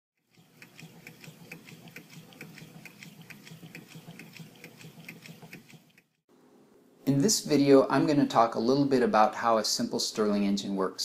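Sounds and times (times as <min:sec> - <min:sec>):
stirling engine ticking: 0:00.2 - 0:06.2.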